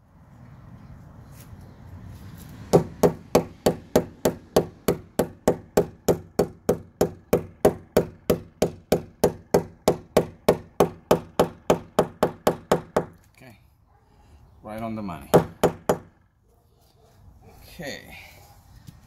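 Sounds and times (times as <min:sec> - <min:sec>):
hammer striking: 0:02.7 - 0:13.2.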